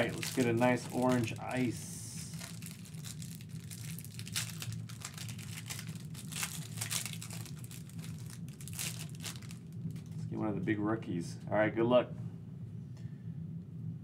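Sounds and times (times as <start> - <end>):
foil wrapper crinkling: 0.0 - 10.2
low steady hum: 0.0 - 14.0.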